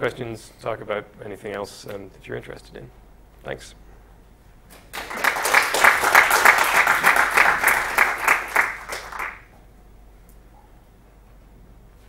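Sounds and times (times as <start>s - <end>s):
audience applauding: 4.9s - 9.5s.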